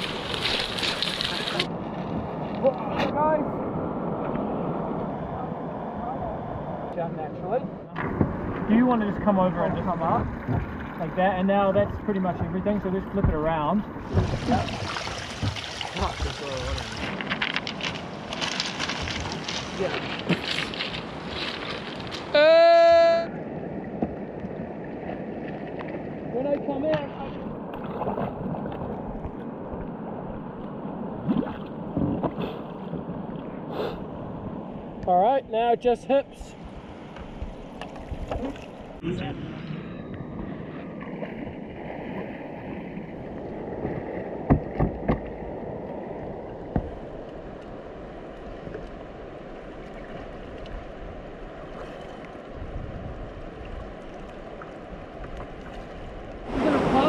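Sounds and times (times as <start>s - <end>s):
river water rushing: 0.0s - 1.7s, 14.0s - 17.2s, 45.4s - 57.0s
flowing river water: 0.0s - 35.0s, 36.4s - 57.0s.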